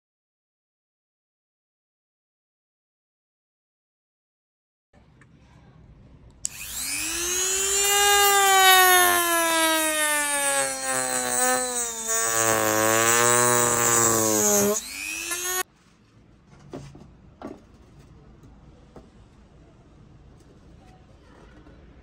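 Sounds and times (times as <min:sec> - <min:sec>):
rotary tool whining carving wood: 0:06.5 - 0:15.6.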